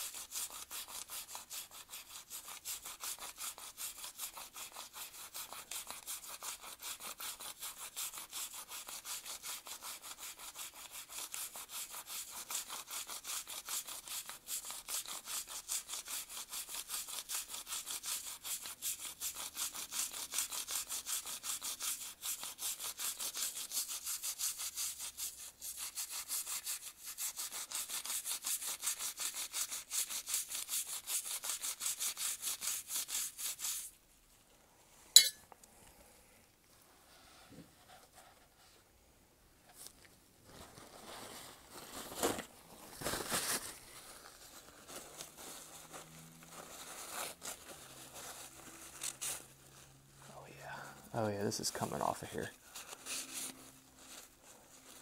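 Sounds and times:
toothbrush scrubbing metal part: 35.2s - 35.4s.

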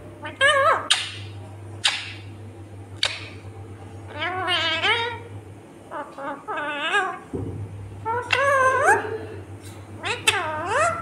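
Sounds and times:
parakeet calling: 0.2s - 2.3s, 4.1s - 5.3s, 5.9s - 7.3s, 8.0s - 9.1s, 10.0s - 11.0s.

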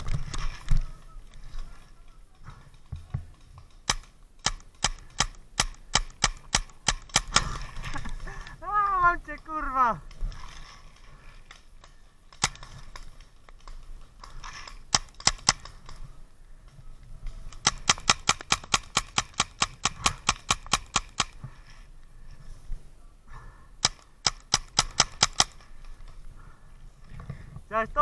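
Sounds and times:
paintball and airsoft gun shots: 1.8s - 8.0s, 17.4s - 21.4s, 23.8s - 25.6s.

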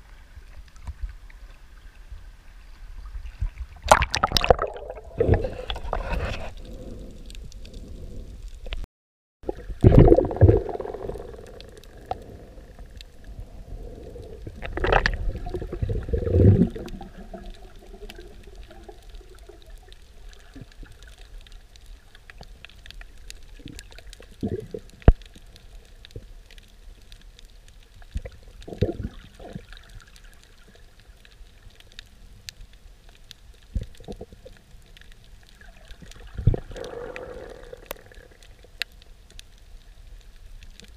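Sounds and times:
underwater rushing water and bubbles: 0.0s - 8.8s, 9.4s - 40.9s
faint ticks: 11.2s - 13.3s, 16.8s - 40.9s.

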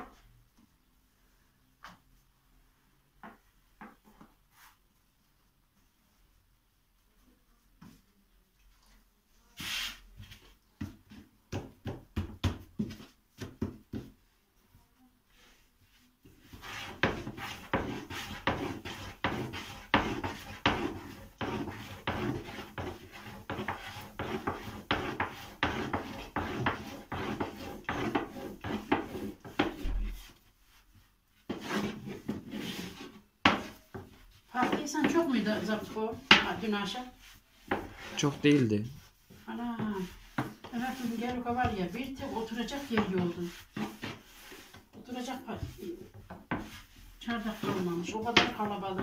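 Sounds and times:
rolling pin knocking on wooden board: 10.8s - 14.1s, 47.6s - 49.0s.

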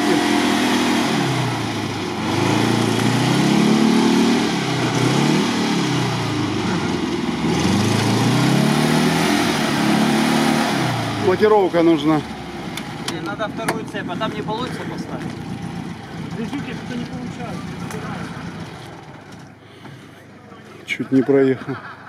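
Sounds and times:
car engine revving: 0.0s - 20.2s.

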